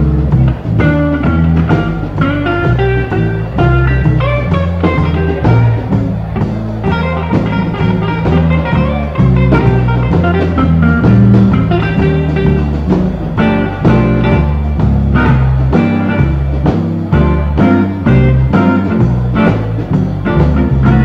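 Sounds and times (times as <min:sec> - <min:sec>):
bass line: 0:00.0 - 0:21.0
blues guitar: 0:00.0 - 0:21.0.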